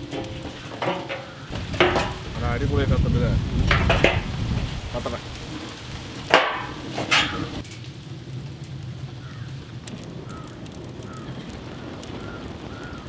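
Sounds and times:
wood fire crackling and popping: 0.0s - 13.0s.

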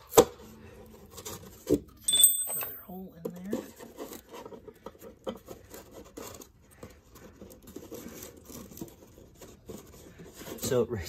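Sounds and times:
metal tubes clicking: 2.1s - 2.9s
cardboard rustling and scraping: 3.4s - 10.9s.

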